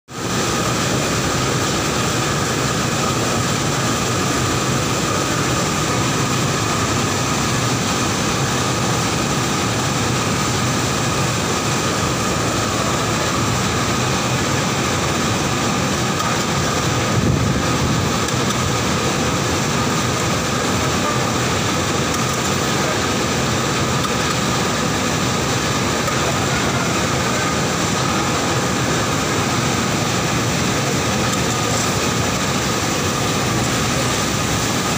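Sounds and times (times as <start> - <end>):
high-pitched whine: 0.1 - 34.9
oil mill machinery drone: 0.1 - 34.9.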